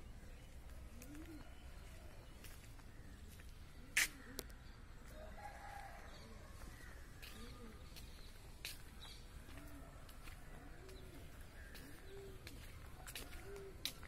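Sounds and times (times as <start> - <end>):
bird cooing: 0.8 - 2.2, 7.2 - 8.1, 9.4 - 14.0.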